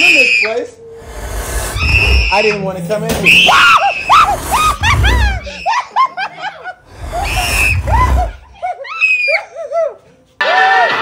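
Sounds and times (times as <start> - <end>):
low rumble: 0.9 - 2.4, 4.1 - 5.6, 6.8 - 8.6.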